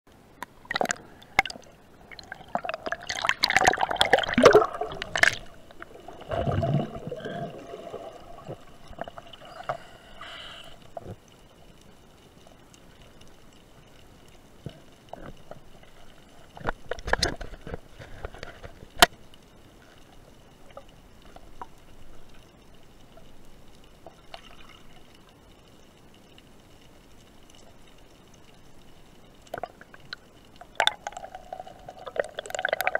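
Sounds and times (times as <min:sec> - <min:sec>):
underwater rushing and bubbling: 0:00.1 - 0:32.9
underwater clicks: 0:00.4 - 0:01.7, 0:02.4 - 0:09.9.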